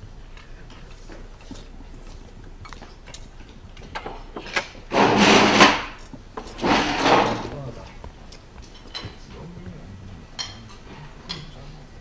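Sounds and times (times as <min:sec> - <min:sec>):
forks clinking on plates: 0:08.6 - 0:09.3, 0:10.4 - 0:11.6.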